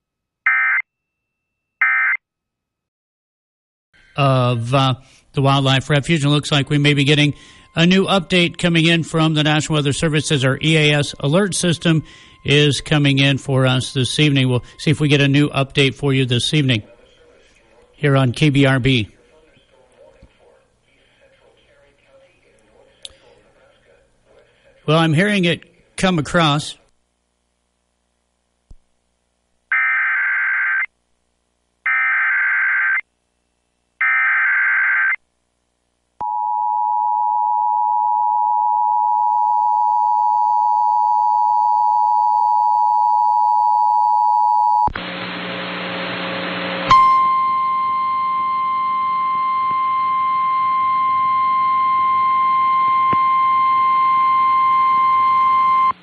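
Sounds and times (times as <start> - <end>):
static: 44.9 - 46.9
two-tone attention signal: 46.9 - 55.9.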